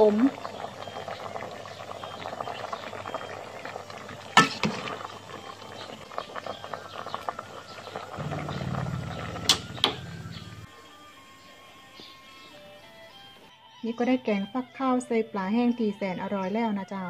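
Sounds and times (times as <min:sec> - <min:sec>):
curry simmering and bubbling: 0:00.0 - 0:10.7
low steady hum: 0:08.2 - 0:10.7.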